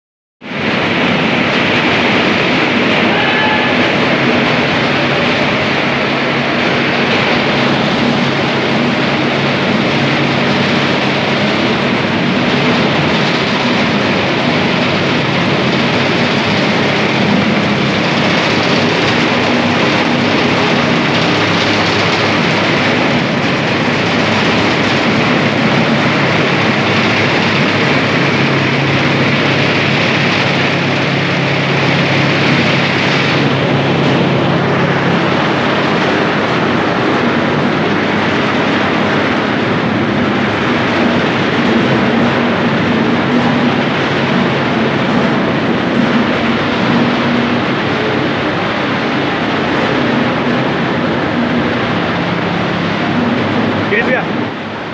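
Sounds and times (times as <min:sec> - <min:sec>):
factory machinery noise: 0:00.4 - 0:54.9.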